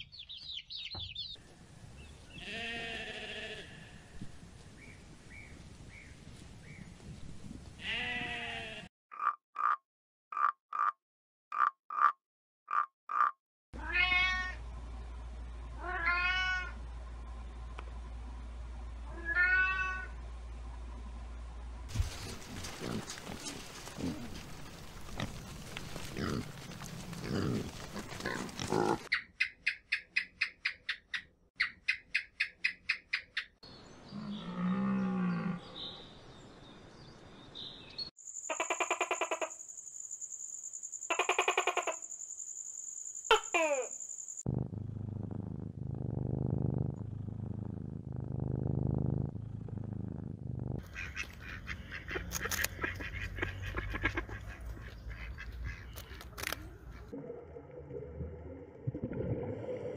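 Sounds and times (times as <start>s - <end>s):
cat meowing: 13.8s - 14.6s, 15.8s - 16.8s, 19.1s - 20.1s
steady low hum: 14.4s - 25.6s.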